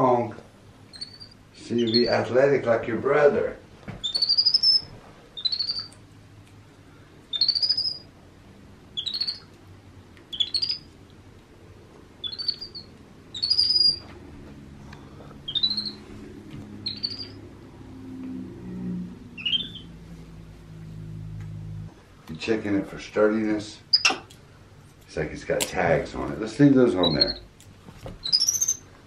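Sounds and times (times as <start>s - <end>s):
baby monkey chirping calls: 0.9s - 2.2s, 4.0s - 6.0s, 7.3s - 8.1s, 8.9s - 9.5s, 10.3s - 10.9s, 12.2s - 14.0s, 15.4s - 16.0s, 16.8s - 17.4s, 19.4s - 19.9s, 23.9s - 24.3s, 27.0s - 27.5s, 28.2s - 28.9s.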